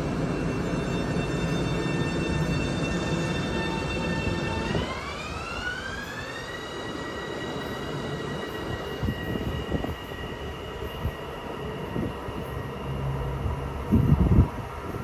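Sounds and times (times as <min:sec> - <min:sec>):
electric train propulsion whine: 0:00.0 - 0:15.0
wheels rumbling on rail: 0:00.0 - 0:15.0.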